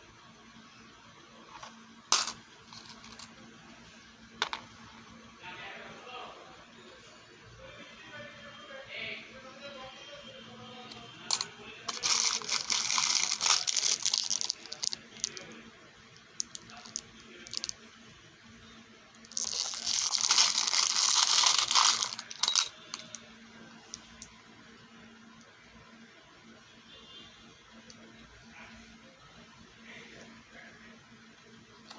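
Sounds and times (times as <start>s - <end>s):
metal charms clinking: 11.3s - 15.0s, 19.3s - 23.1s
plastic packet crinkling: 11.9s - 15.5s, 19.3s - 22.7s.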